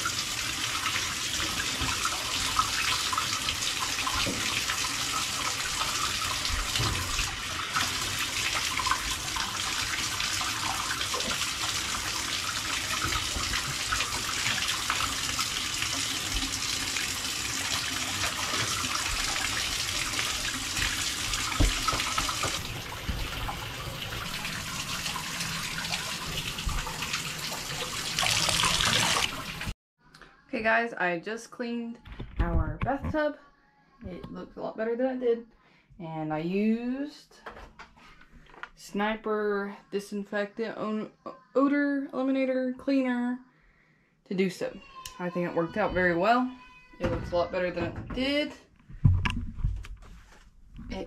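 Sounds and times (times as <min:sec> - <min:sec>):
water running into bathtub: 0:00.0 - 0:29.8, 0:44.6 - 0:51.0.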